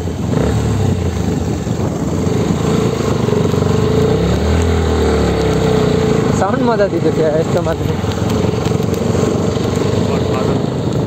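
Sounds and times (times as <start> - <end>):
motorcycle engine under load: 0.0 - 11.0.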